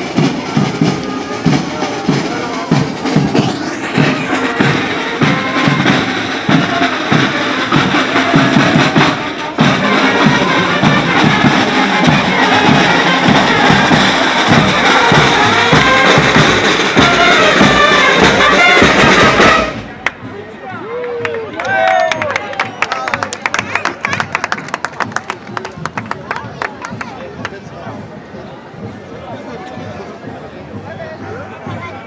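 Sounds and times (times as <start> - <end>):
bass and snare drums: 0.0 - 20.4
saxophones and trumpets: 0.0 - 20.6
marching band playing: 0.0 - 32.0.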